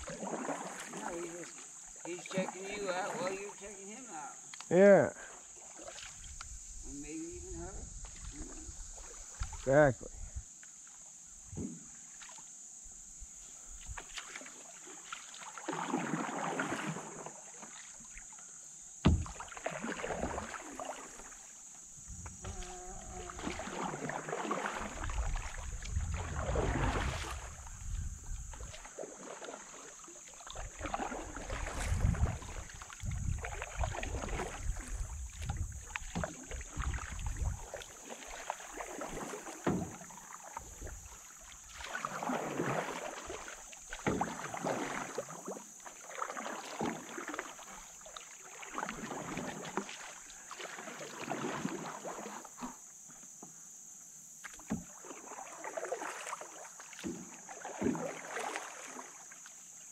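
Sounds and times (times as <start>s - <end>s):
paddle strokes in water: 0.0s - 59.9s
wind rumble on microphone: 6.2s - 10.5s, 25.0s - 28.8s, 31.2s - 37.7s.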